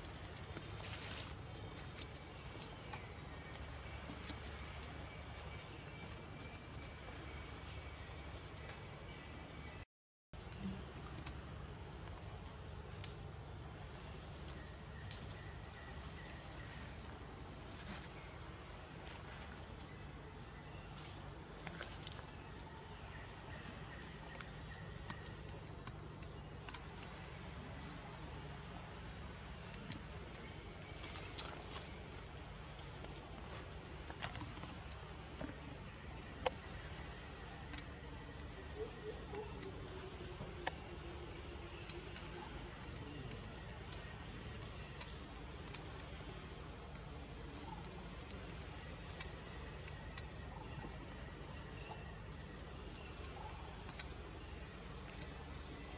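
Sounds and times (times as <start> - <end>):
faint clicks: 37.6 - 38.0, 41.8 - 45.9, 48.2 - 51.0, 53.2 - 54.2.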